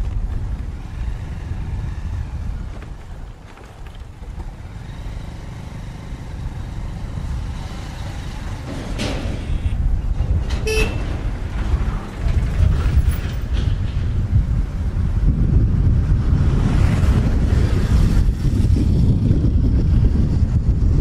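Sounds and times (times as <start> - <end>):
wind noise on microphone: 0.0 - 5.0, 6.4 - 21.0
motorcycle engine at low speed: 0.0 - 21.0
short horn toot: 10.6 - 11.1.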